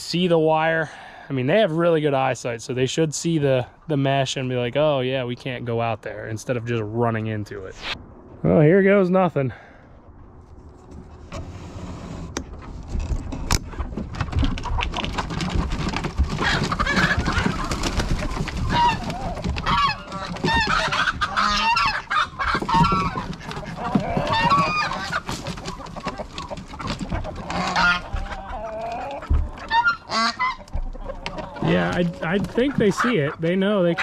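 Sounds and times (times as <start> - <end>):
chickens clucking and squawking: 13.6 - 34.0.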